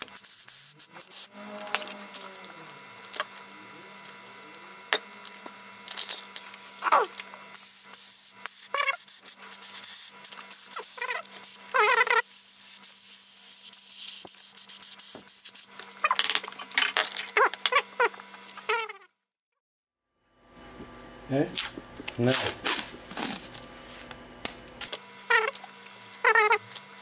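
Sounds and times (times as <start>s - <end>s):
steady low hum: 0.0s - 18.8s, 20.2s - 27.0s.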